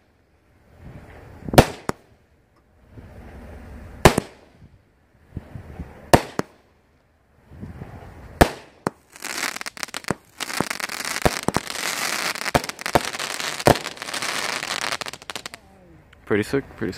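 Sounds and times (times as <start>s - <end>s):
firework crackle: 8.4s - 15.6s
rushing hiss of rising shell: 8.5s - 15.6s.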